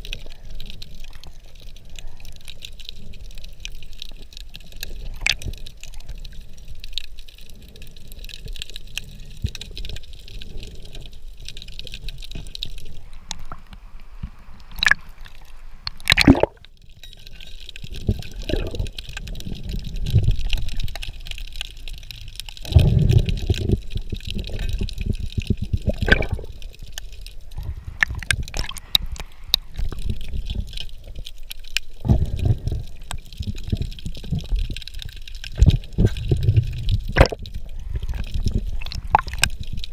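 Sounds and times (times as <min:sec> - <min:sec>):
low water swishing: 0:12.8 - 0:16.8, 0:17.8 - 0:39.9
muffled underwater gurgling: 0:14.4 - 0:16.6, 0:18.0 - 0:21.2, 0:22.6 - 0:26.8, 0:27.4 - 0:31.2, 0:32.0 - 0:39.9.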